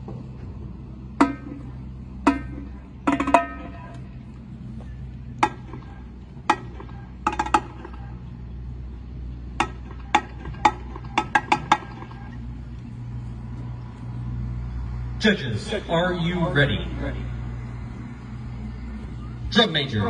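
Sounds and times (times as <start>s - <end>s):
low hum: 0.0s - 20.0s
sharp ringing taps: 1.2s - 4.0s.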